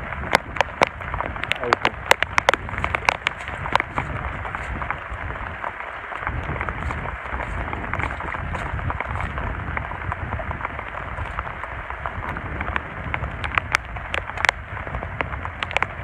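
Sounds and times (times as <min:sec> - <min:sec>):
hands digging in wet mud: 0:01.5 - 0:09.8.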